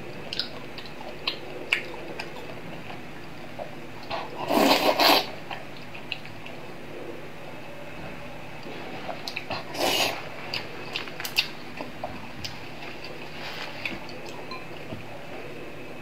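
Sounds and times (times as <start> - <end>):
steady low hum: 0.0 - 16.0
person eating: 0.2 - 6.6, 8.6 - 14.6
noisy rustle: 12.6 - 14.1.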